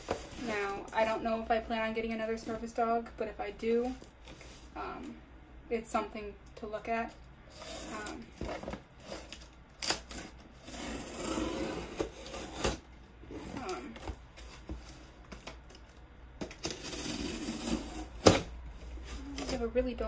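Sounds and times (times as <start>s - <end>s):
knife sawing cardboard: 10.6s - 12.8s, 16.7s - 18.1s.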